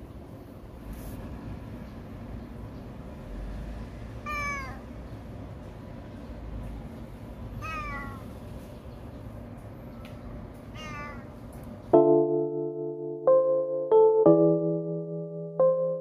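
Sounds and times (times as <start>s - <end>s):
faint background hum: 0.0s - 15.7s
cat meowing: 4.2s - 4.9s, 7.6s - 8.3s, 10.7s - 11.4s
sustained keyboard chords: 11.8s - 16.0s.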